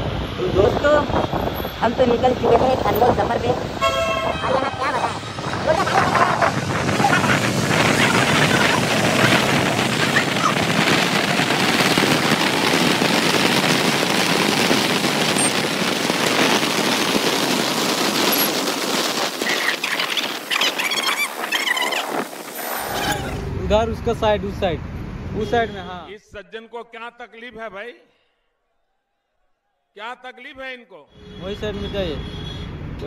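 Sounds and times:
wind buffeting microphone: 0:00.0 - 0:24.4
road and engine noise: 0:00.0 - 0:26.1, 0:31.1 - 0:33.0.

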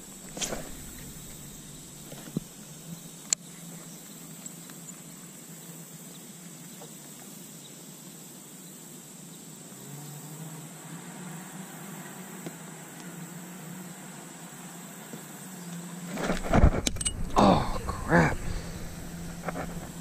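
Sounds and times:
steady low hum: 0:00.0 - 0:04.0, 0:16.1 - 0:20.0.

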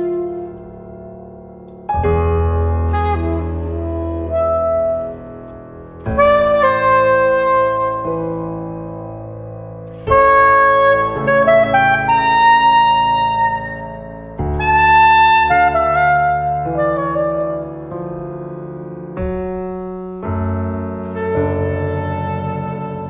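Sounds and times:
saxophone melody: 0:00.0 - 0:01.0, 0:02.0 - 0:08.8, 0:09.9 - 0:18.1, 0:21.0 - 0:23.0
piano chords ringing: 0:00.0 - 0:23.0.

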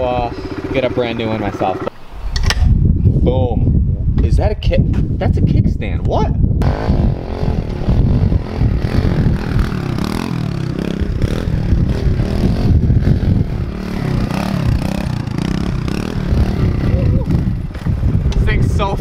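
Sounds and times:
motorcycle engine revving: 0:00.0 - 0:01.9, 0:06.6 - 0:18.4.

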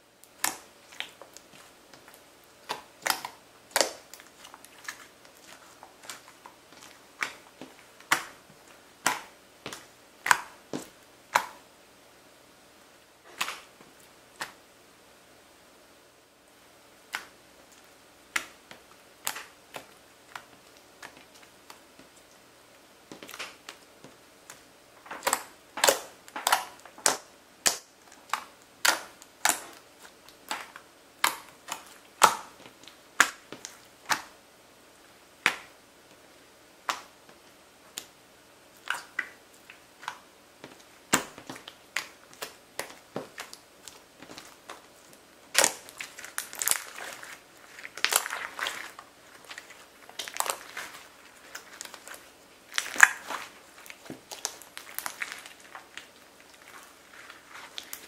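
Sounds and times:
slime popping and clicking: 0:45.5 - 0:47.1.

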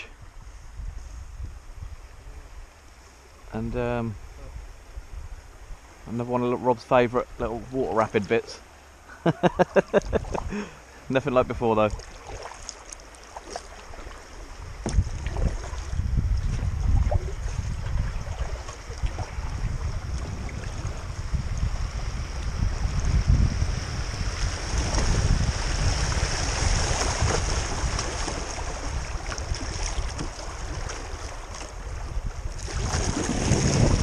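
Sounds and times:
wind rumble on microphone: 0:00.0 - 0:06.4, 0:09.6 - 0:12.5, 0:13.5 - 0:34.0
river water rushing and splashing: 0:04.2 - 0:34.0
paddle strokes in water: 0:11.6 - 0:23.2, 0:24.2 - 0:34.0.

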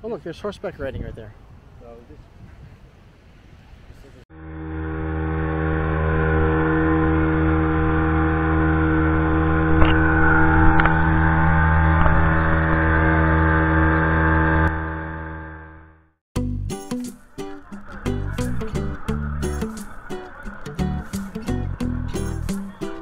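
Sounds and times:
motorboat engine running: 0:04.4 - 0:16.1, 0:17.6 - 0:23.0.

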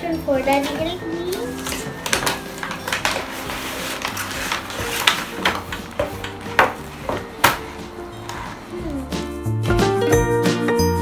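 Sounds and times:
quiet background music: 0:00.0 - 0:11.0
packaging clicks and knocks: 0:01.4 - 0:07.7.

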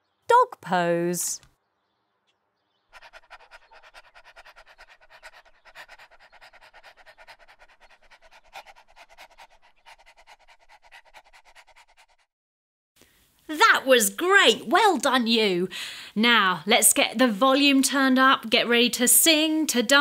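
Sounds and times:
dog panting: 0:02.9 - 0:12.3.

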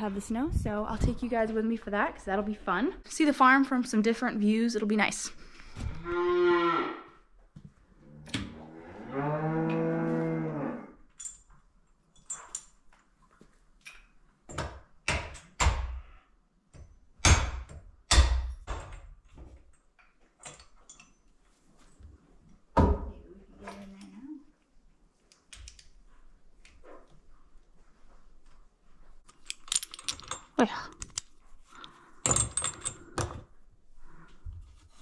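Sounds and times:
cows mooing: 0:06.0 - 0:07.1, 0:08.1 - 0:11.0.

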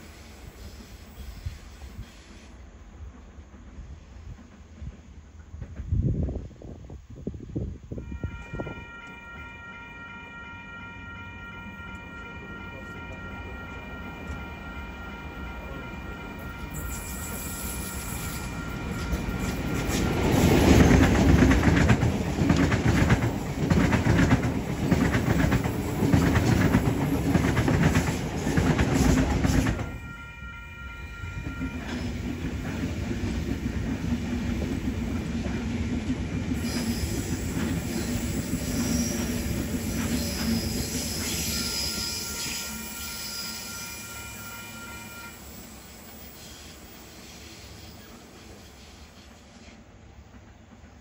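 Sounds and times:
train low hum: 0:00.0 - 0:51.0
faint high wheel squeal: 0:11.0 - 0:20.0, 0:36.6 - 0:49.8
train wheels clacking over rail joints: 0:17.9 - 0:30.0.

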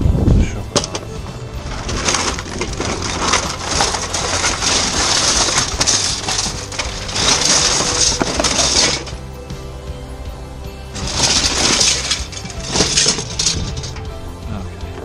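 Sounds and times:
plastic packaging crackling: 0:01.9 - 0:09.2.

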